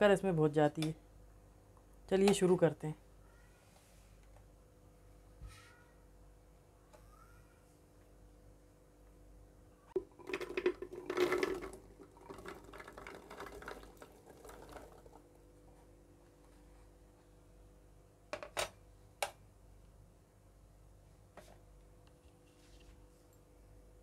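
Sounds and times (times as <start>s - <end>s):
berries rattling into plastic jar: 10.0s - 15.2s.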